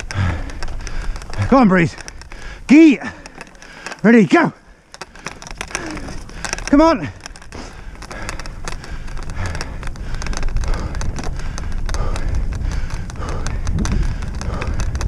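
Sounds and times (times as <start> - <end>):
wheels rolling: 0.0 - 15.0
wind on microphone: 5.4 - 15.0.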